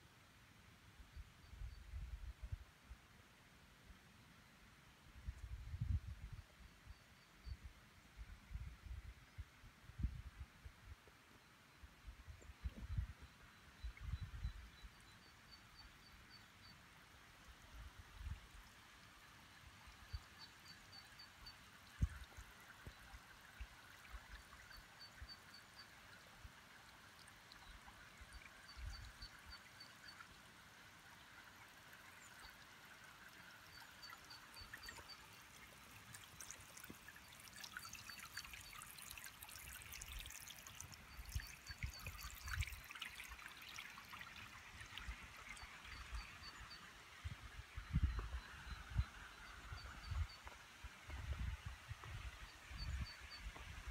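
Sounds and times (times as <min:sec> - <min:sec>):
faint trickle of running water: 0:11.0 - 0:53.9.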